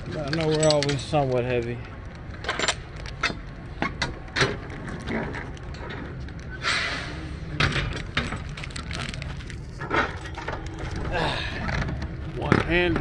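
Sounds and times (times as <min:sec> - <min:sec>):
low steady hum: 0:00.0 - 0:13.0
short hiss: 0:06.6 - 0:07.4.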